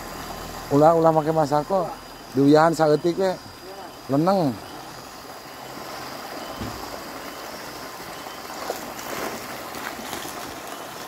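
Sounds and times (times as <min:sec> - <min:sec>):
water splashing: 0:00.0 - 0:11.0
water gushing into basket: 0:03.9 - 0:11.0.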